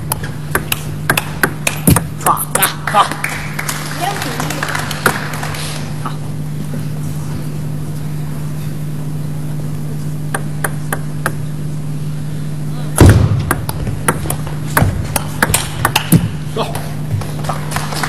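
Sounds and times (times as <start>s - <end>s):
steady low hum: 0.0s - 18.0s
loud thud: 13.0s - 13.5s.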